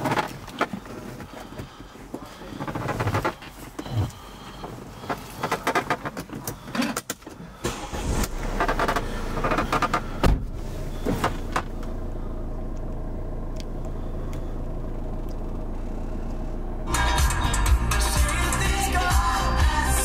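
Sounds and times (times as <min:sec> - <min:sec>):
handling clicks and rustles: 0:00.0 - 0:12.0
car engine idling: 0:00.0 - 0:20.0
thump: 0:10.2 - 0:10.5.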